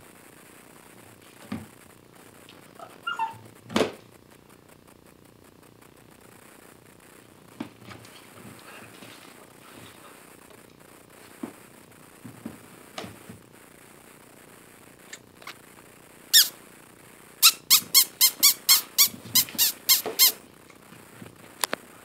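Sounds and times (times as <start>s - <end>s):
puppy whining: 2.8s - 3.5s.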